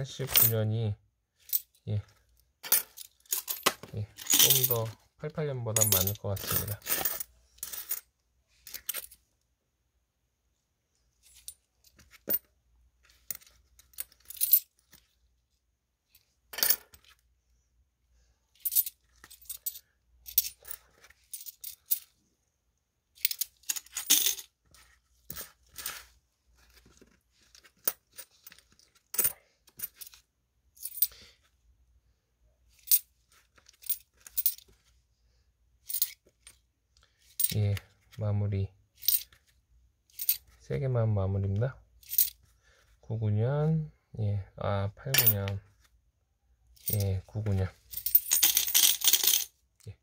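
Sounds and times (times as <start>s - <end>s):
coins clinking: 2.6s - 4.9s, 5.8s - 8.0s, 8.7s - 9.2s, 16.5s - 17.0s, 18.6s - 22.1s, 23.2s - 24.5s, 33.6s - 34.7s, 35.9s - 36.6s, 39.0s - 39.4s, 40.1s - 40.5s, 42.0s - 42.4s, 45.2s - 45.5s, 47.9s - 49.5s.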